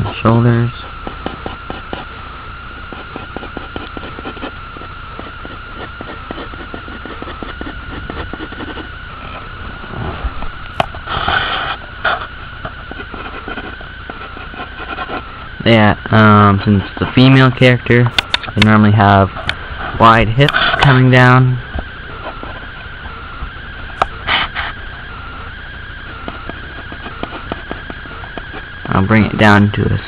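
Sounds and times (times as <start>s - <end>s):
steady high whine: 0.0s - 30.0s
pencil scratching on paper: 1.0s - 2.1s, 2.8s - 9.0s, 11.0s - 15.3s, 26.2s - 28.7s.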